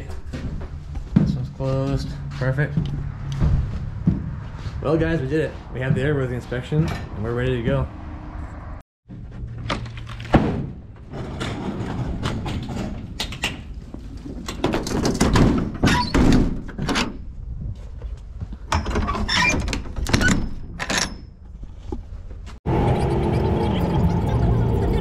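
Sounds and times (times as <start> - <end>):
latch clanks and rattles: 9.6 - 17.2, 18.7 - 21.4.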